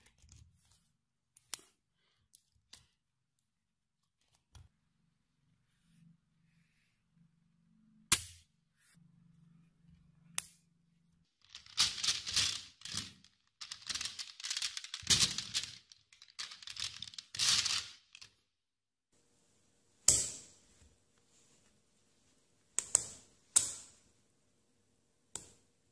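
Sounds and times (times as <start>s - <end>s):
magnetic balls clacking and rattling: 11.4s - 18.4s.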